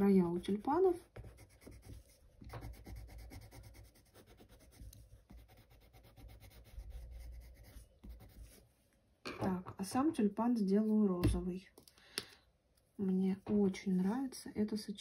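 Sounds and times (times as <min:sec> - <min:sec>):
pencil scratching on paper: 0:00.2 - 0:08.6.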